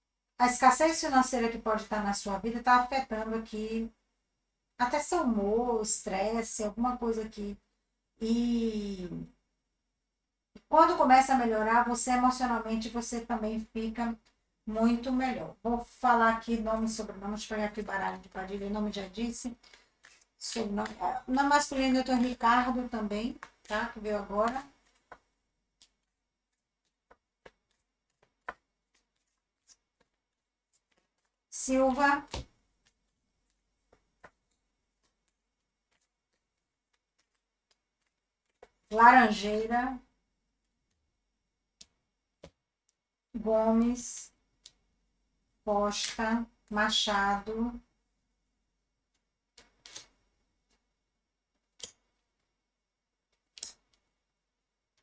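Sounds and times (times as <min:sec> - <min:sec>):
cards clicking and tapping: 0:19.6 - 0:21.0, 0:23.3 - 0:23.8, 0:24.4 - 0:38.9, 0:41.8 - 0:43.0, 0:49.1 - 0:50.8, 0:51.5 - 0:52.5, 0:53.3 - 0:54.1.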